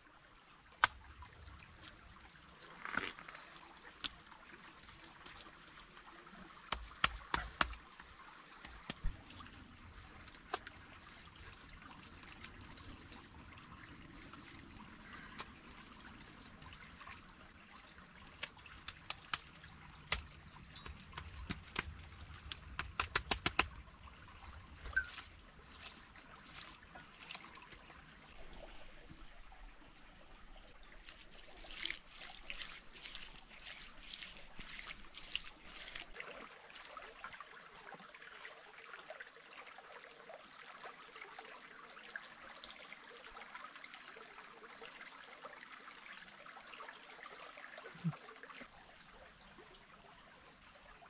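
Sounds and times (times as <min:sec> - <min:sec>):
stream trickling: 0:00.0 - 0:51.0
clicks and taps among stones: 0:06.7 - 0:07.8, 0:08.6 - 0:09.2, 0:18.4 - 0:23.8.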